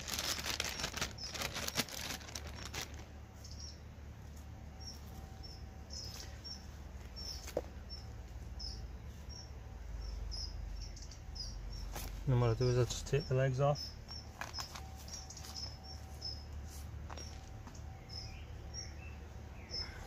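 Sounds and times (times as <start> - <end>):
bag crinkling: 0.0 - 3.2.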